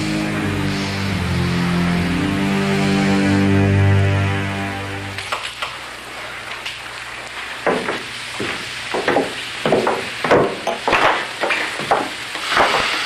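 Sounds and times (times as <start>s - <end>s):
footsteps on wooden stairs: 7.7s - 12.2s.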